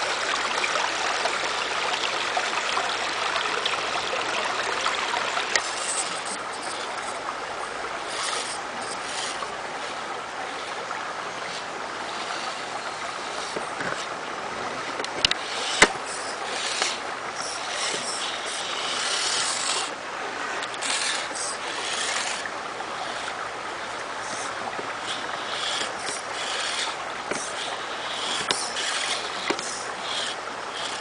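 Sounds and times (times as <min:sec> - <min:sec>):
creek water running: 0:00.0 - 0:31.0
toy car motor whirring: 0:05.6 - 0:07.2, 0:08.0 - 0:10.8, 0:11.4 - 0:14.1, 0:15.3 - 0:19.9, 0:20.5 - 0:23.4, 0:24.2 - 0:31.0.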